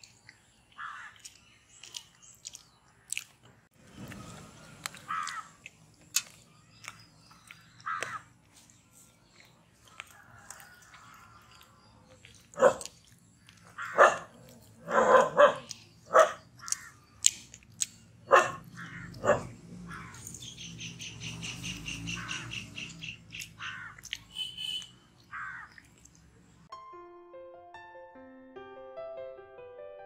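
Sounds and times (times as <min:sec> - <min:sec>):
bird chirping: 0:00.0 - 0:26.7
dog barking: 0:12.5 - 0:12.9, 0:13.8 - 0:16.4, 0:18.3 - 0:19.6.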